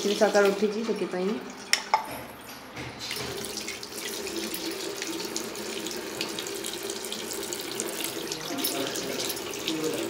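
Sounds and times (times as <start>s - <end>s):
tap running into sink: 1.2s - 7.0s.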